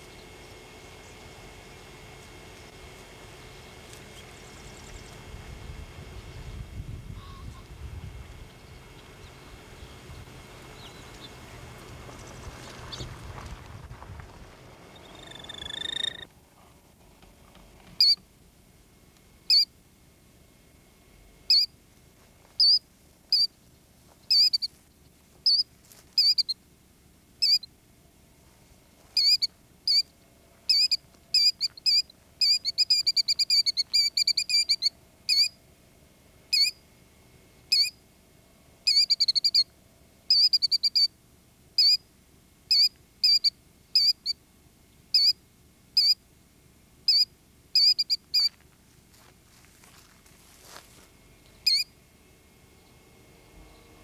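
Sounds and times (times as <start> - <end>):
bird calling high sharp notes: 14.9 - 16.3, 29.2 - 30.1, 38.9 - 39.7, 51.6 - 51.9.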